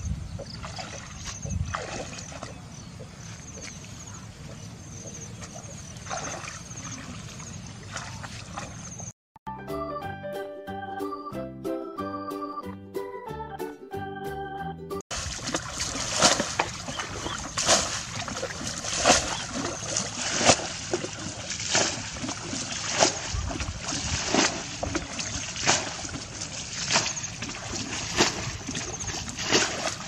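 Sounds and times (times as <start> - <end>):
footsteps splashing in water: 0.4 - 9.1, 15.1 - 30.0.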